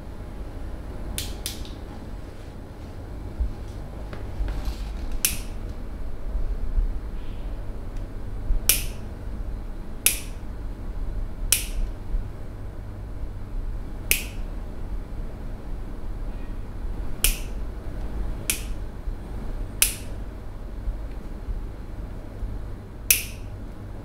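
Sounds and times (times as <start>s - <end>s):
low steady hum: 0.0s - 24.0s
sharp hand snaps: 1.2s - 1.8s, 5.2s - 5.6s, 8.7s - 9.0s, 10.0s - 10.4s, 11.5s - 11.9s, 14.1s - 14.5s, 17.2s - 17.6s, 18.5s - 18.8s, 19.8s - 20.2s, 23.1s - 23.5s.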